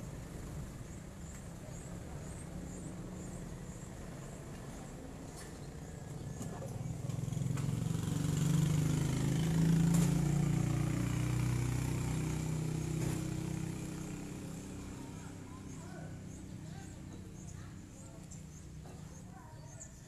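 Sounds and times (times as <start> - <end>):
vehicle engine passing by: 6.2 - 16.4.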